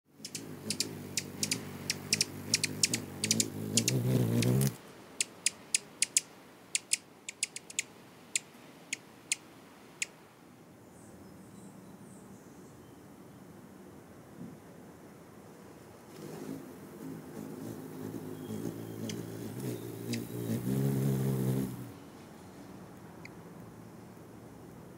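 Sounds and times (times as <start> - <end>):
hummingbird wings humming: 0.1 - 9.4, 16.2 - 23.3
sharp high bird chips: 0.2 - 4.0, 5.2 - 9.4.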